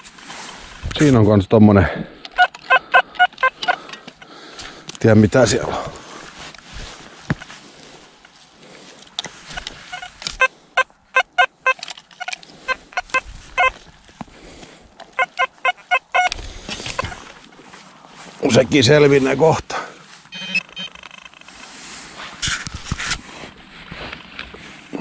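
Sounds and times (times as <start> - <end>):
grass rustling and handling: 0.0 - 1.6, 3.4 - 25.0
metal detector beeping: 2.3 - 4.3, 9.5 - 13.8, 15.1 - 17.2, 20.3 - 21.6.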